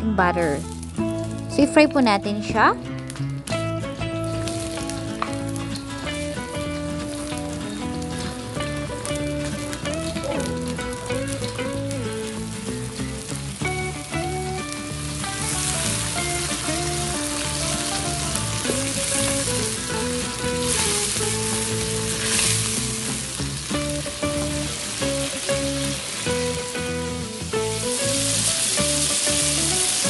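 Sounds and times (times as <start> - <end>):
shrimp sizzling in hot oil: 0.0 - 30.0.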